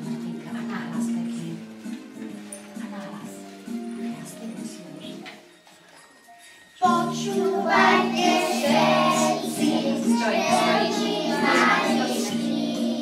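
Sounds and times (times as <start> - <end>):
recorded music: 6.2 - 13.0
young children singing: 6.8 - 13.0.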